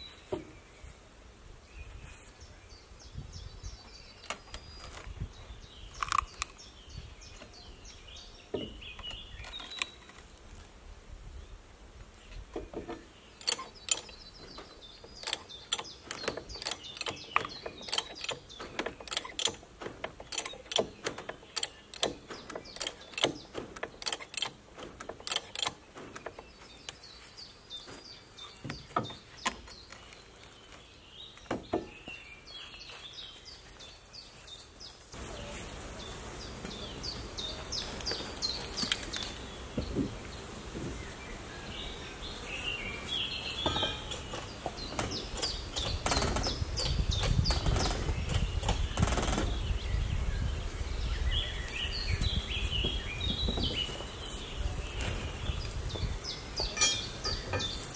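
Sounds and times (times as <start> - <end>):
birds chirping: 0.0 - 10.7, 11.3 - 57.9
sharp irregular clicks: 13.4 - 14.2, 15.1 - 27.0, 44.9 - 49.6.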